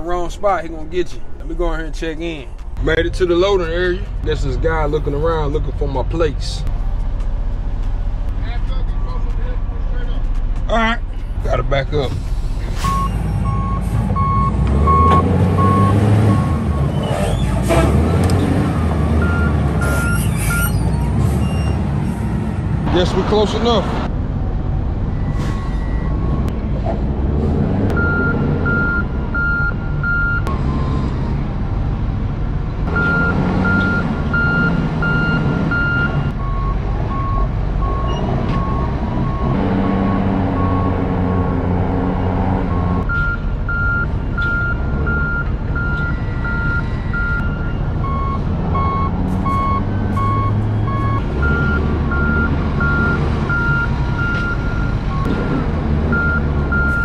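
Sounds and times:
forklift engines running: 0.0 - 57.0
low-pitched backup alarm beeping: 33.0 - 41.0, 42.8 - 55.3.

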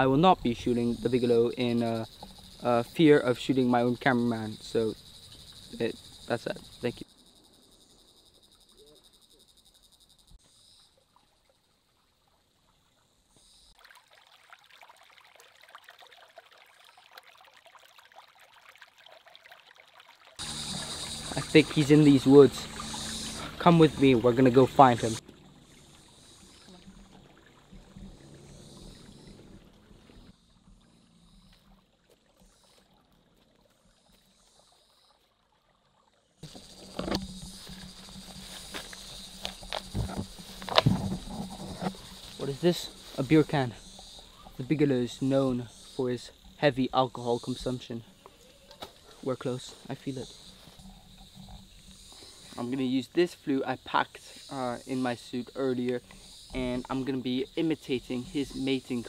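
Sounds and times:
stream trickling over rocks: 0.0 - 9.6, 10.2 - 59.0
insects chirping: 0.0 - 17.9, 20.3 - 59.0
leaves rustling: 36.4 - 44.0
footsteps through undergrowth: 36.5 - 43.2.

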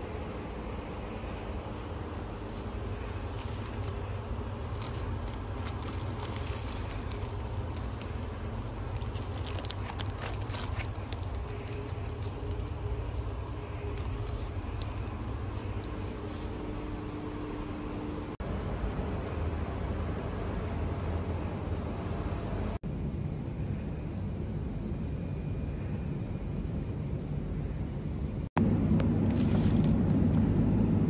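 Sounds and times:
low hum: 0.0 - 31.0
plastic bags crinkling: 2.9 - 16.6.

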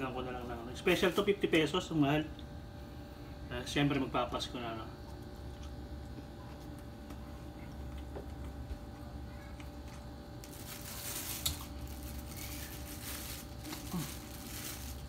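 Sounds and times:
low room hum: 0.0 - 15.0
plastic bag crinkling: 9.9 - 15.0.

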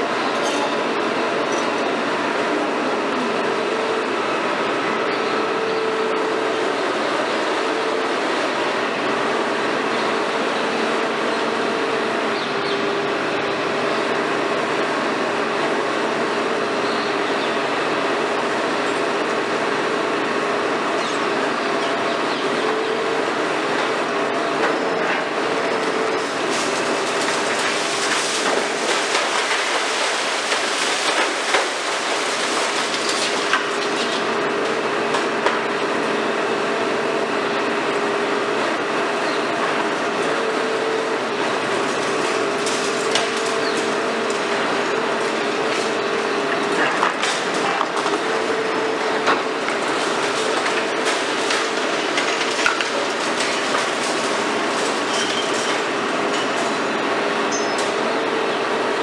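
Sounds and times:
excavator engine and hydraulics drone: 0.0 - 59.0
concrete breaking and debris falling: 26.2 - 34.3, 41.8 - 44.5, 46.6 - 56.7.

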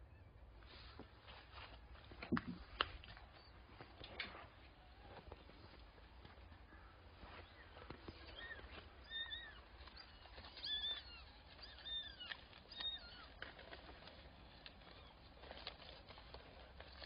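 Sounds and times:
kittens mewing: 6.9 - 16.0.

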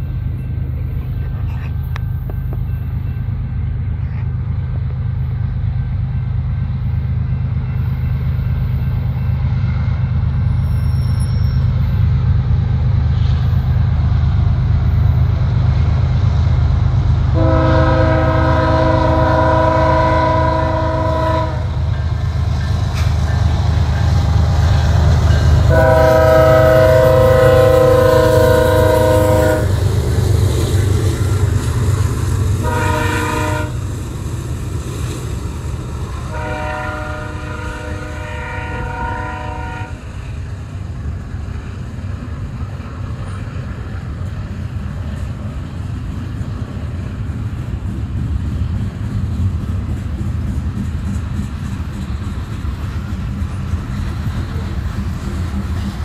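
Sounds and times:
freight train rumbling past: 0.0 - 56.0
locomotive horn blasts: 17.4 - 22.0, 25.6 - 29.8, 32.6 - 33.8, 36.2 - 40.1.

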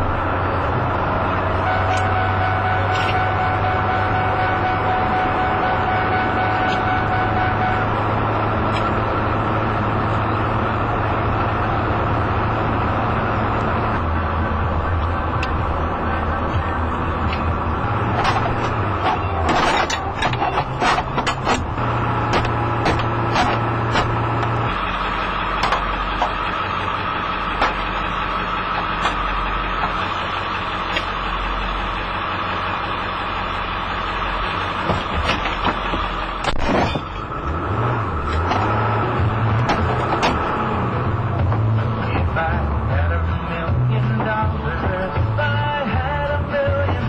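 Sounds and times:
car interior drone: 0.0 - 47.0
high-pitched tone: 1.6 - 8.2
sharp clicks and knocks: 18.1 - 24.6, 25.6 - 26.4, 39.4 - 40.6.

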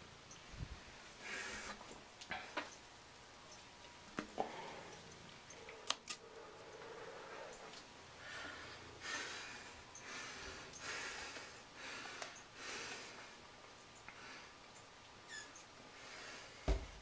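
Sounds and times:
person breathing noisily: 8.2 - 13.4.

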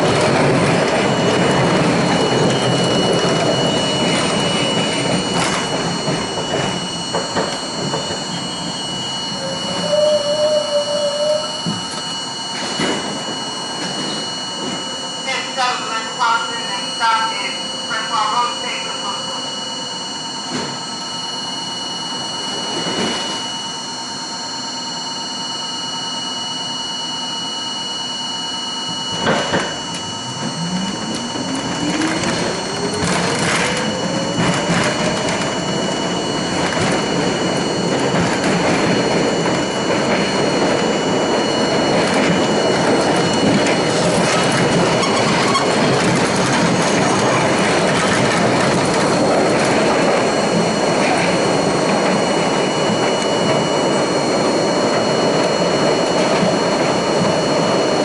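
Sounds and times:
train thump: 0.0 - 8.8, 11.6 - 14.8, 28.9 - 37.4
traction motor whine: 0.0 - 58.0
electrical hum: 26.8 - 58.0
wheels rolling on rails: 29.2 - 58.0.

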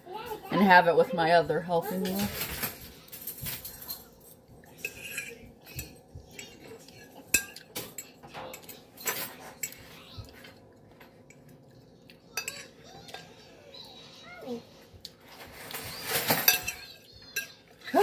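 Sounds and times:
fork scraping ceramic plate: 4.7 - 10.0.

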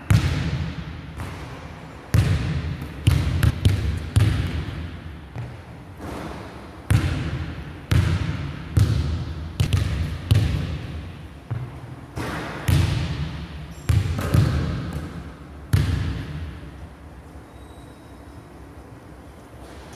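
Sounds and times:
basketball bouncing on hardwood floor: 2.1 - 4.7, 6.9 - 10.8, 11.5 - 13.2, 13.9 - 15.1.

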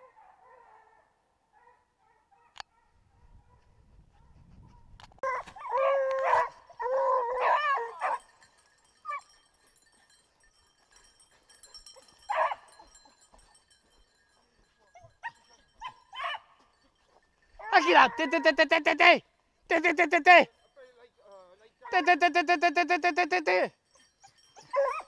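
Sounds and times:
dog yelps: 4.7 - 8.3, 12.0 - 13.1, 15.0 - 16.6, 17.6 - 18.6, 23.8 - 25.0
hounds baying: 5.2 - 18.8, 23.7 - 25.0.

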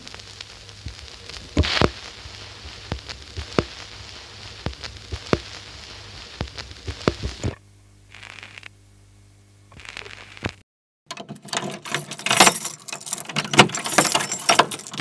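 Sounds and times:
hiss: 0.0 - 8.7
vinyl surface crackle and pops: 0.0 - 8.8, 9.5 - 10.6.

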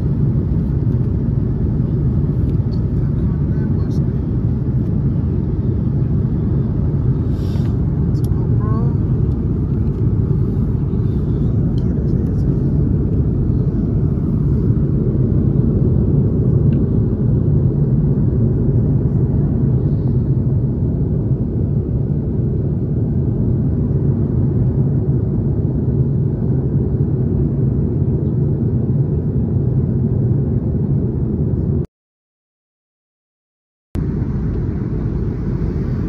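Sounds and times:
vehicle interior rumble: 0.0 - 18.4, 34.0 - 36.0.

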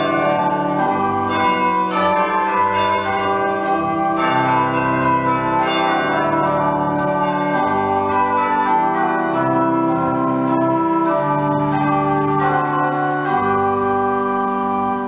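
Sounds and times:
church bells pealing: 0.0 - 15.0.

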